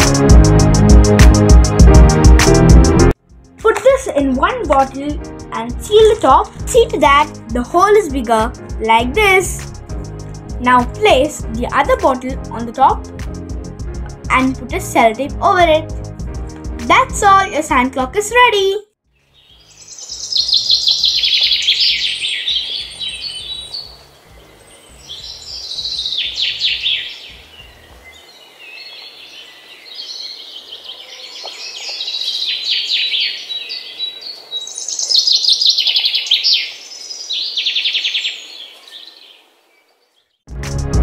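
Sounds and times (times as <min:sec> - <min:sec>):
birds chirping in trills: 0:19.1 - 0:40.4.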